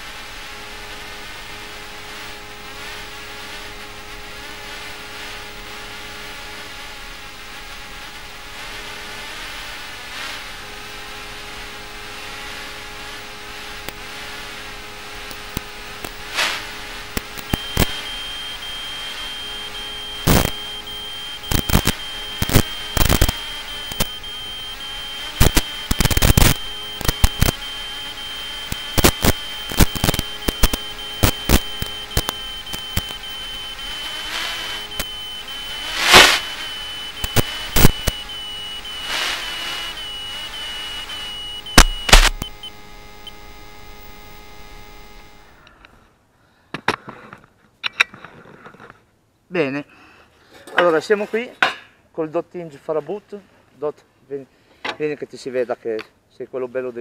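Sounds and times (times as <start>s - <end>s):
quadcopter motors whirring: 15.6s - 45.5s
steady high beep: 17.5s - 43.4s.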